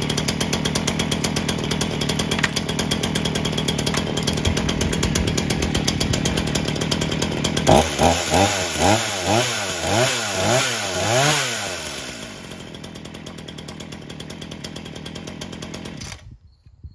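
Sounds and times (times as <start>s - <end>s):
chainsaw engine revving: 0.0s - 16.2s.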